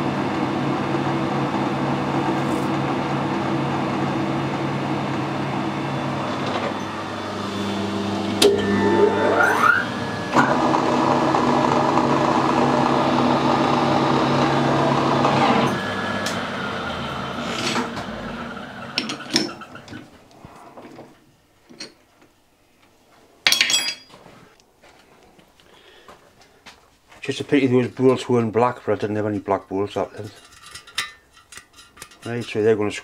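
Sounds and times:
metal lathe motor whine: 0:00.2 - 0:20.0.

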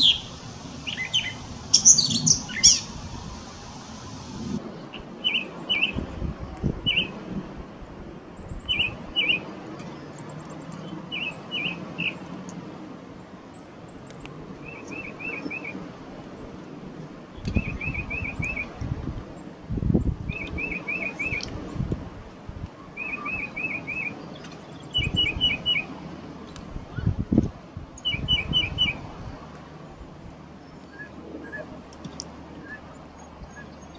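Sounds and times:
songbird calling: 0:00.0 - 0:03.0, 0:04.9 - 0:06.0, 0:08.4 - 0:12.2, 0:13.5 - 0:15.8, 0:17.4 - 0:18.7, 0:20.0 - 0:21.5, 0:22.8 - 0:25.9, 0:28.0 - 0:29.0, 0:30.6 - 0:33.9
low rumbling noise: 0:00.0 - 0:33.9.

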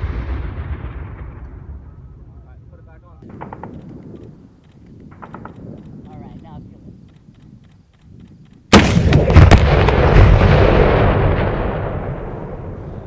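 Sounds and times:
sharp cracks: 0:03.2 - 0:12.7
launcher blast: 0:08.7 - 0:13.0.

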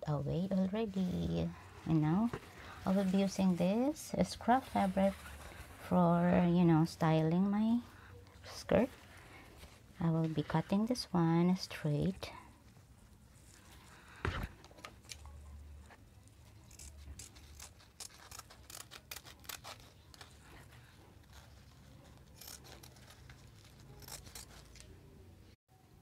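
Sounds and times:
scissors snipping fabric: 0:16.3 - 0:25.0.

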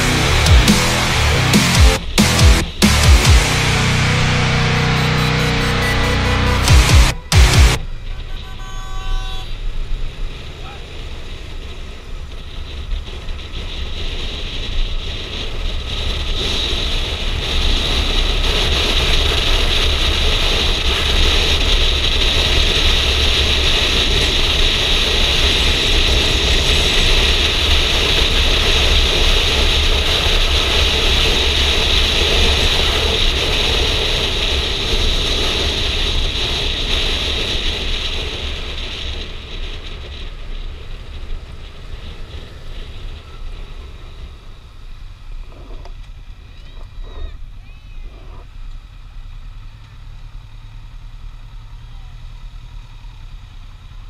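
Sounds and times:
motorcycle engine: 0:00.0 - 0:08.6
road noise: 0:00.0 - 0:54.0
wind rushing over helmet camera: 0:07.2 - 0:48.6.

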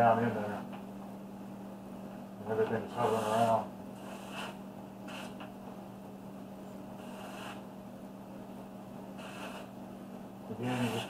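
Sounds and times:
steady low hum: 0:00.0 - 0:11.0
airbrush hissing bursts: 0:03.0 - 0:05.4, 0:07.0 - 0:07.6, 0:09.2 - 0:09.7, 0:10.6 - 0:11.0.

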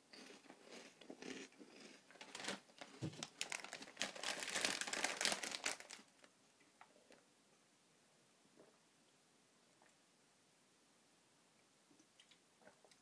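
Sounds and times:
plastic snack packet crinkling: 0:00.2 - 0:06.3.

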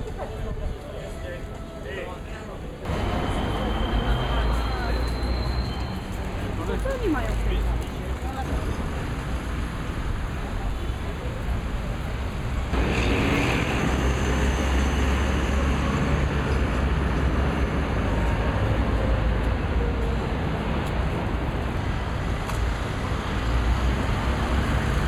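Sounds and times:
traffic rumble: 0:02.2 - 0:25.0.

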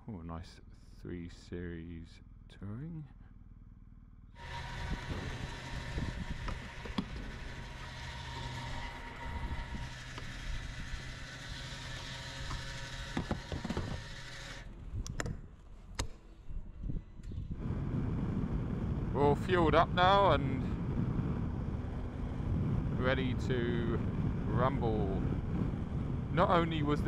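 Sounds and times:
fuel pump rushing hiss: 0:04.4 - 0:14.7
sharp clicks and knocks: 0:12.4 - 0:16.2.

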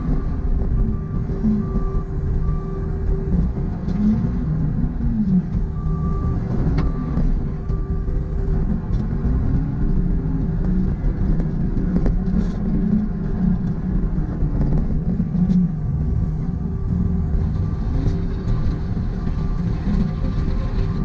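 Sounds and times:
backup alarm beeping: 0:00.0 - 0:10.6
diesel engine revving: 0:00.0 - 0:21.0
steady mechanical whine: 0:00.0 - 0:21.0.

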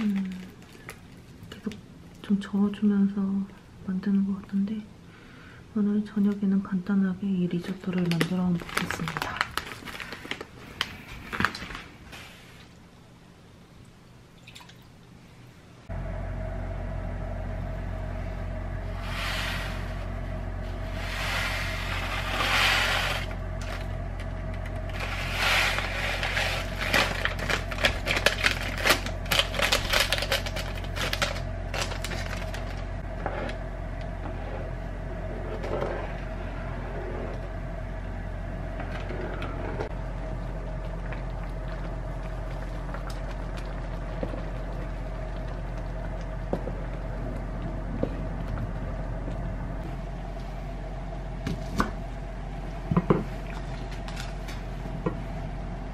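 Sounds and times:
steady hum: 0:00.0 - 0:55.9
wooden spatula scraping pan: 0:20.7 - 0:23.3.

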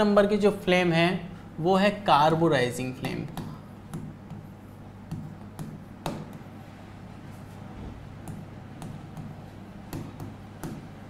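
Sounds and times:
steady low hum: 0:00.0 - 0:11.0
stylus tapping on whiteboard: 0:03.0 - 0:06.5, 0:08.2 - 0:11.0.

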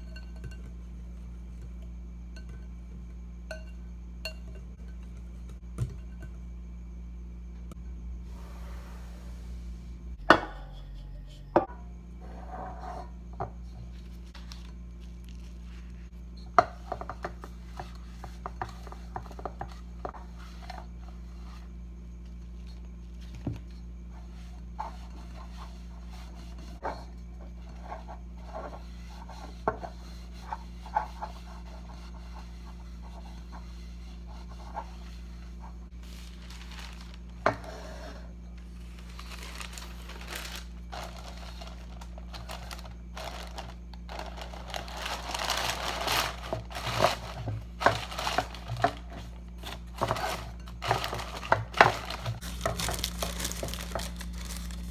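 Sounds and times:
steady low hum: 0:00.0 - 0:54.9
knocks and clinks of kitchenware: 0:10.2 - 0:11.0
paper rubbing on pan: 0:27.6 - 0:48.8.

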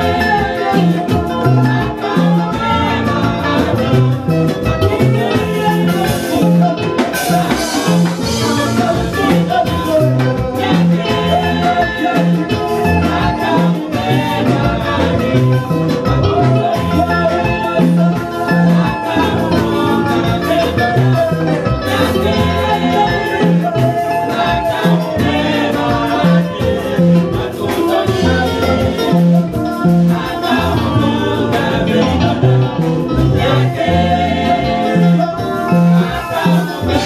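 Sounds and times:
choir singing: 0:00.0 - 0:37.0
live band with bass line: 0:00.0 - 0:37.0.

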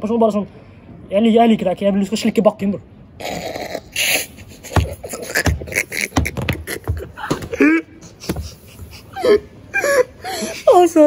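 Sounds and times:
man laughing: 0:04.5 - 0:10.2
dull thumps: 0:04.6 - 0:08.6.

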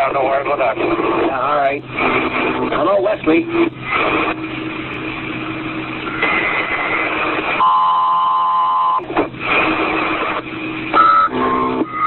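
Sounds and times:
low hum: 0:00.0 - 0:12.0
radio static hiss: 0:00.0 - 0:12.0
radio beep: 0:02.0 - 0:04.4, 0:06.0 - 0:12.0.

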